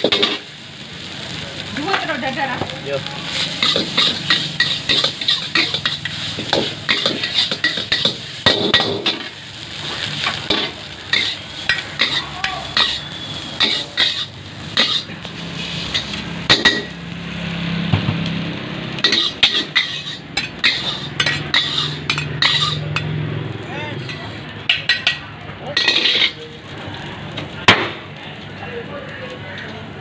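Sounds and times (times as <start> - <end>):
metal ladles clanking on wok: 0.0 - 0.5, 3.3 - 15.2, 15.9 - 17.0, 19.0 - 23.2, 24.0 - 26.5
frying sizzle: 0.0 - 30.0.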